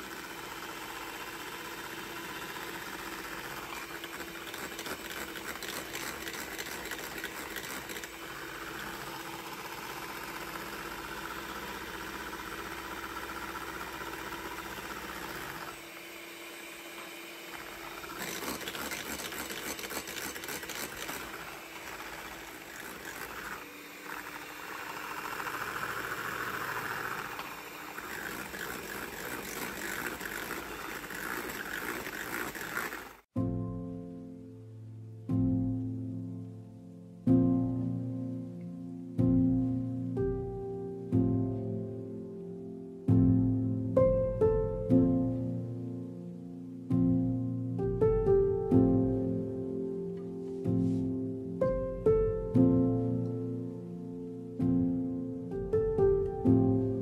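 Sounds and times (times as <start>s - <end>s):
electric hand mixer whisking: 0.0s - 33.4s.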